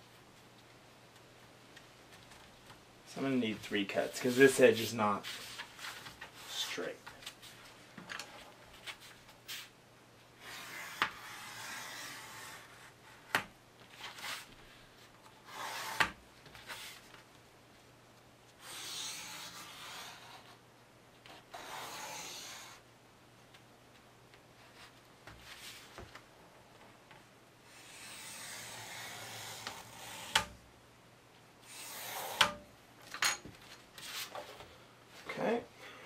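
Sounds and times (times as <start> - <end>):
knife scraping through board: 15.4 - 16.1, 31.7 - 32.6.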